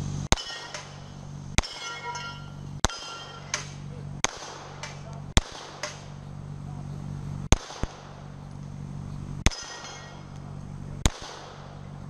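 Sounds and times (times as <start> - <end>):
steel plate ringing: 0.3 - 3.9, 9.4 - 10.4
sharp crack: 0.3 - 6.2, 7.5 - 8.8, 9.4 - 12.0
loud pistol shots: 2.8 - 6.2, 7.5 - 8.4, 9.4 - 10.3, 11.0 - 11.8.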